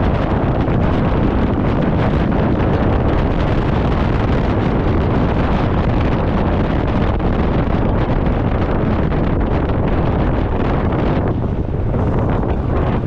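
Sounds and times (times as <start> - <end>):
road noise: 0.0 - 13.0
wind buffeting microphone: 0.0 - 13.0.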